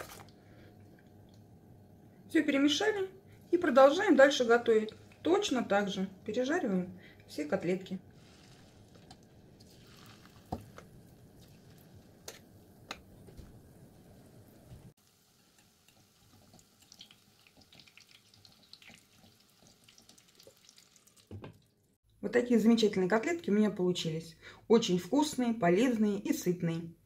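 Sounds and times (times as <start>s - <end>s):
fritters sizzling in oil: 14.0s - 21.2s.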